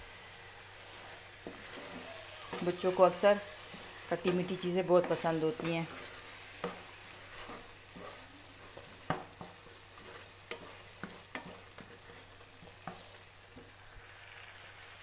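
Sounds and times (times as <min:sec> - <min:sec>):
meat sizzling in a pan: 0:00.0 - 0:15.0
spoon knocking and scraping pan: 0:01.4 - 0:13.8.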